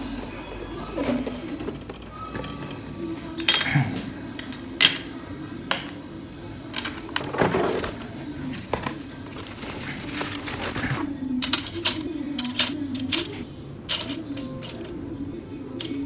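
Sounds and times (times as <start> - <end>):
plastic parts clicking and clacking: 6.7 - 14.9.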